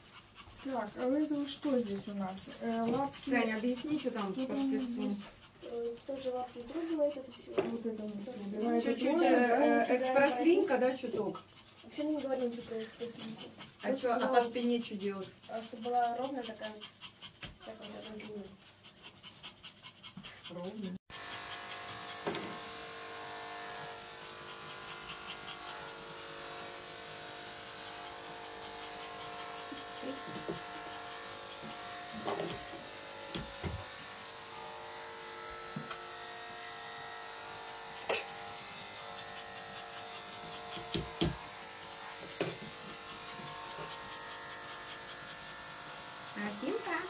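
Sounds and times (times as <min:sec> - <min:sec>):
electric hair clipper running: 0:21.1 - 0:47.0.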